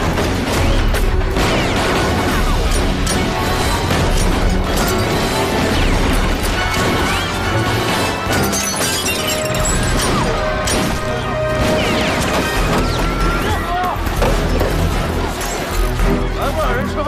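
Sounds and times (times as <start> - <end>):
action music score: 0.0 - 17.0
pistol shots: 9.6 - 14.6.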